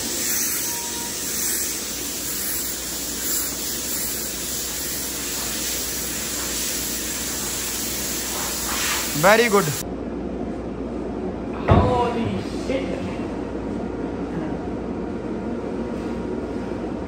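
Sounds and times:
air blow gun hissing: 0:00.0 - 0:09.8.

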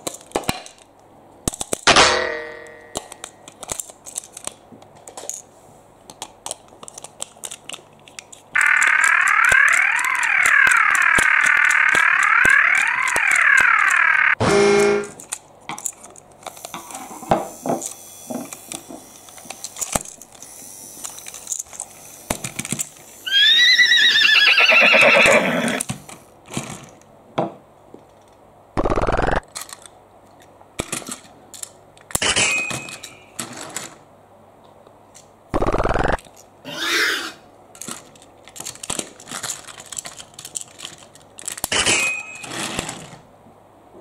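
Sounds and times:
plastic toy trains clicking: 0:02.9 - 0:05.4, 0:06.1 - 0:14.4, 0:15.2 - 0:23.2, 0:29.1 - 0:34.0, 0:37.7 - 0:43.2.

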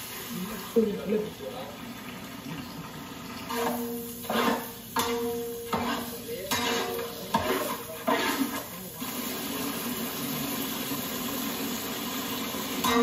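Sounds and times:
hot pot hissing: 0:00.0 - 0:13.0
metal ladle scraping a pot: 0:03.5 - 0:08.8.

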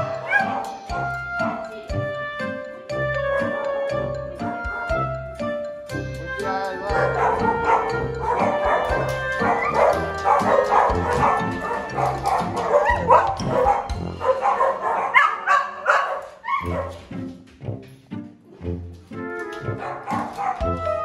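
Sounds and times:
dog barking and yipping: 0:00.0 - 0:01.7, 0:06.9 - 0:17.1, 0:19.4 - 0:21.0
background music: 0:00.0 - 0:21.0.

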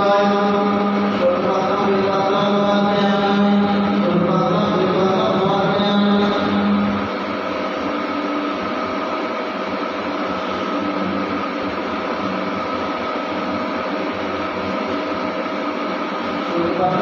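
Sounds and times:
mantra chanting: 0:00.0 - 0:07.0.

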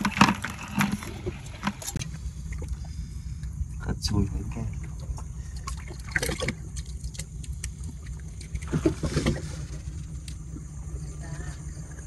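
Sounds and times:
steady low rumble: 0:00.0 - 0:12.0
water lapping and trickling: 0:00.0 - 0:12.0.

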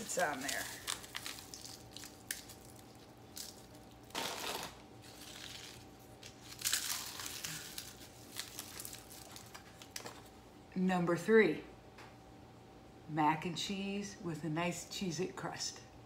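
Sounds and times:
crackers crunching by hand: 0:00.0 - 0:10.3.

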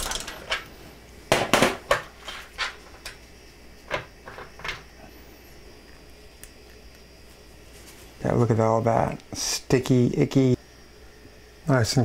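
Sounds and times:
metal parts and tools clinking: 0:00.0 - 0:00.7.

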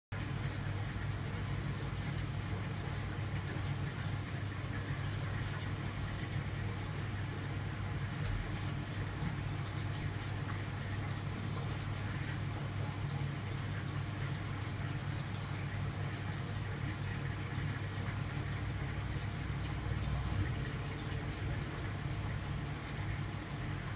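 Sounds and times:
aquarium equipment hum: 0:00.1 - 0:23.9
bubbling water: 0:00.2 - 0:23.9.

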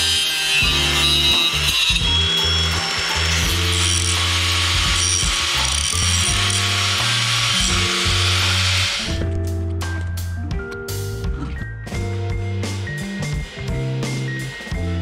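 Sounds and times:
angle grinder cutting metal: 0:00.0 - 0:09.2
background music: 0:00.0 - 0:15.0.

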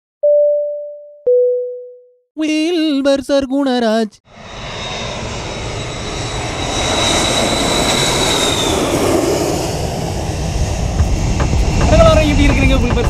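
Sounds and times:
high turbine whine: 0:04.3 - 0:13.0
jet engine roar: 0:04.3 - 0:13.0.

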